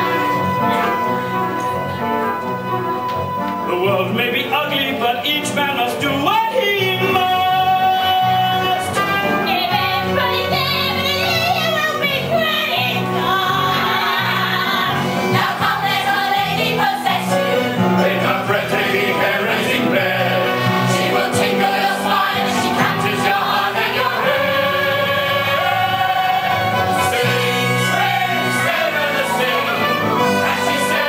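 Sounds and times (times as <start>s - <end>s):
live band playing: 0.0s - 5.2s
ensemble singing: 13.0s - 31.0s.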